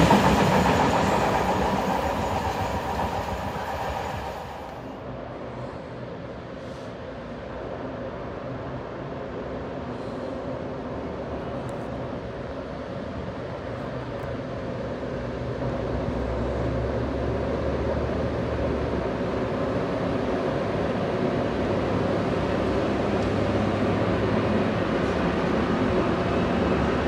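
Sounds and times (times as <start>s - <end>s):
electric locomotives passing: 0.0s - 6.4s, 14.4s - 27.0s.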